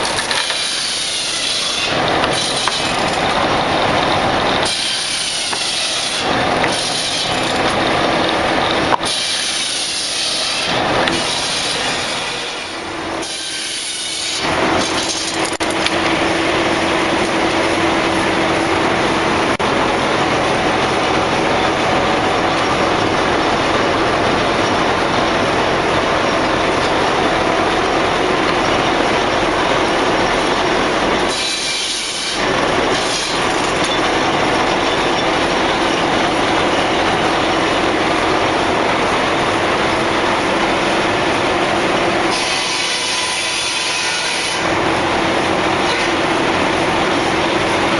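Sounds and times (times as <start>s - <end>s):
mill machinery running: 0.0s - 47.9s.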